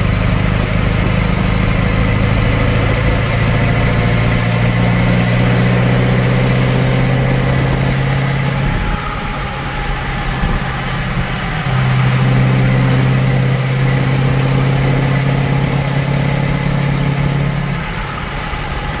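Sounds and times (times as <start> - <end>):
truck engine droning: 0.0 - 19.0.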